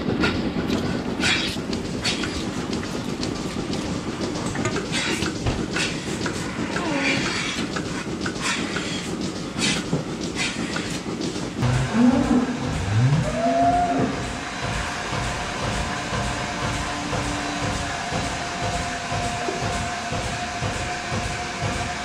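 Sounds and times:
milking machinery rumble: 0:00.0 - 0:22.0.

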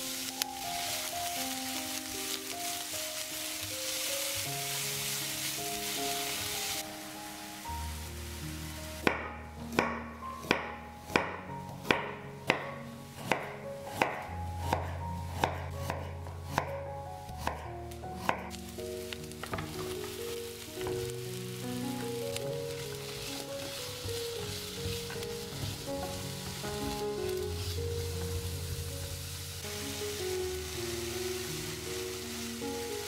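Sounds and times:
onions sizzling in a frying pan: 0:00.0 - 0:33.0
knife slicing carrot on wooden board: 0:13.2 - 0:16.7, 0:17.4 - 0:18.5.

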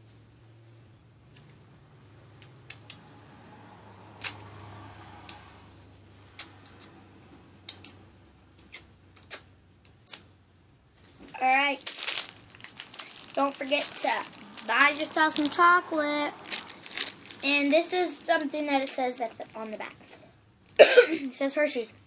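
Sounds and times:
wet mouth and finger smacks: 0:07.6 - 0:08.0, 0:08.6 - 0:10.3.

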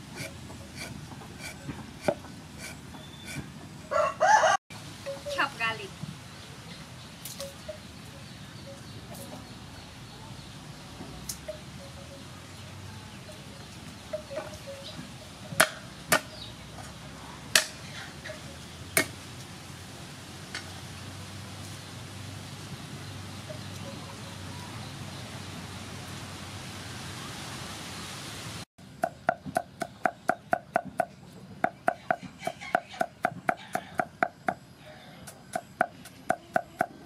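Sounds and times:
cleaver chopping on wooden board: 0:00.2 - 0:03.4, 0:15.6 - 0:16.3, 0:29.0 - 0:34.6.

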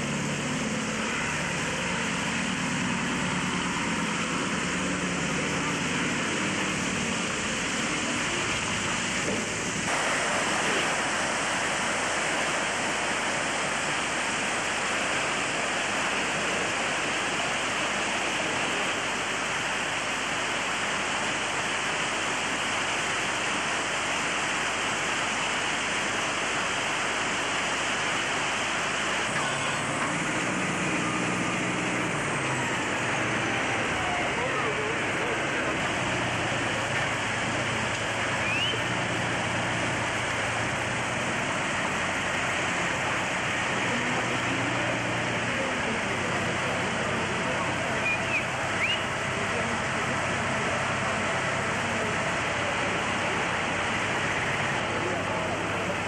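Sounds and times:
loud steady rushing noise: 0:00.0 - 0:56.0.

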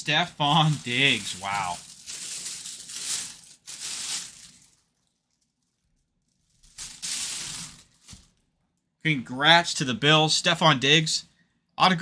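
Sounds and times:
plastic bag crinkling: 0:00.2 - 0:08.4.

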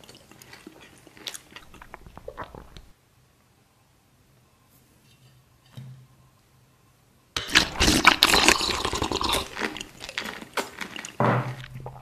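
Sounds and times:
wet slurping of candy soup: 0:00.0 - 0:02.9, 0:07.4 - 0:12.0.

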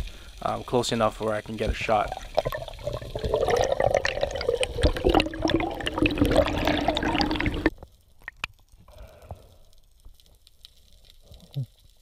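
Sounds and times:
underwater rushing water: 0:01.5 - 0:07.7
sharp underwater clicks: 0:02.2 - 0:08.7.

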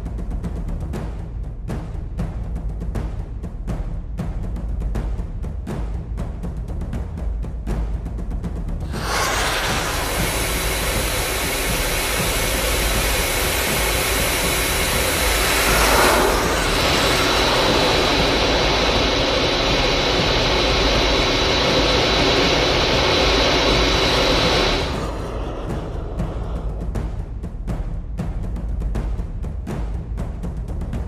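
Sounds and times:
jet engine roar with high whine: 0:08.8 - 0:27.2
whoosh: 0:08.8 - 0:27.6.

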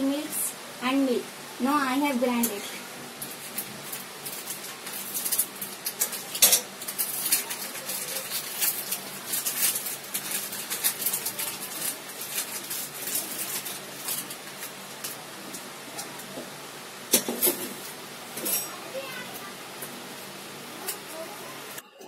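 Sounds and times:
plastic wrappers crinkling and tearing: 0:02.5 - 0:16.4.

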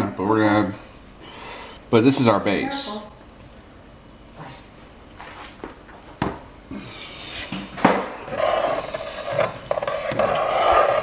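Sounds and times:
spatula scraping a pot: 0:08.2 - 0:11.0.

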